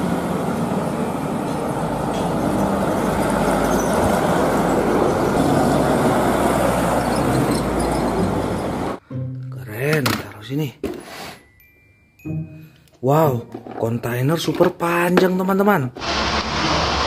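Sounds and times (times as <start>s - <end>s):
motorcycles passing: 0.0s - 9.0s
trucks driving past: 0.0s - 9.3s, 16.0s - 17.0s.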